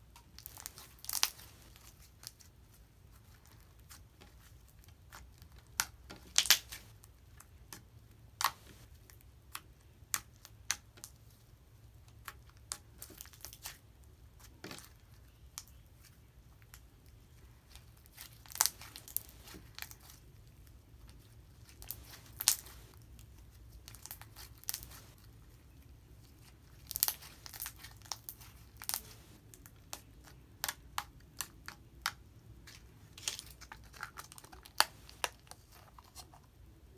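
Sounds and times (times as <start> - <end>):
slime popping and crackling: 0.2 - 2.4, 3.8 - 7.0, 17.7 - 20.2, 21.0 - 25.3, 26.4 - 32.2, 33.2 - 35.6.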